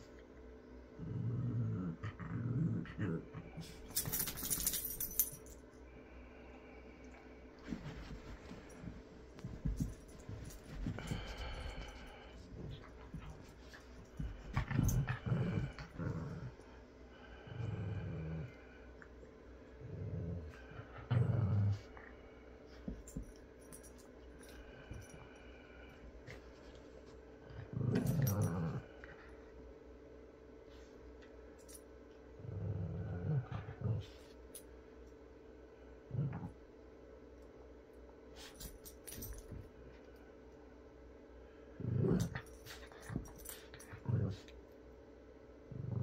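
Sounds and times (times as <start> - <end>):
dog play growl: 0.9 - 5.4, 7.6 - 18.9, 19.7 - 22.2, 27.4 - 29.4, 32.3 - 34.4, 36.0 - 36.6, 41.7 - 44.6, 45.6 - 46.0
dogs scuffling on carpet: 7.6 - 15.0.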